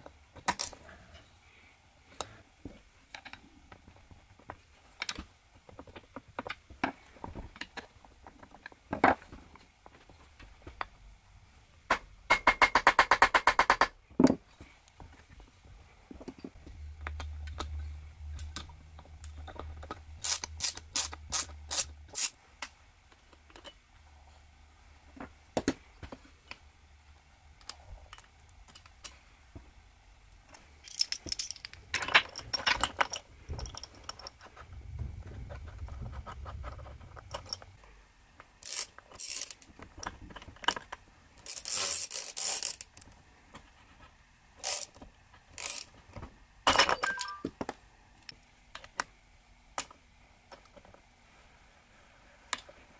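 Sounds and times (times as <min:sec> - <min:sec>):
socket ratchet clicking: 0:20.2 - 0:22.3, 0:38.6 - 0:39.7, 0:45.6 - 0:45.9
metal tools clinking: 0:30.8 - 0:34.4, 0:46.7 - 0:47.5.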